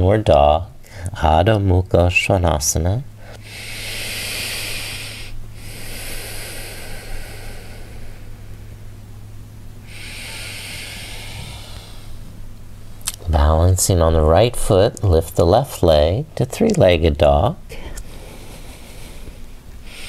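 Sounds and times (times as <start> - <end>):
steady low hum: 0.0 - 20.0
person breathing slowly: 3.2 - 9.0, 9.8 - 12.4, 17.7 - 20.0.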